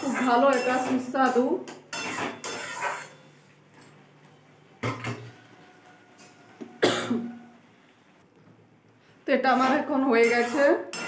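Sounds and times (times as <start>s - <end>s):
metal ladle scraping a pan: 0.0s - 3.4s, 9.3s - 11.0s.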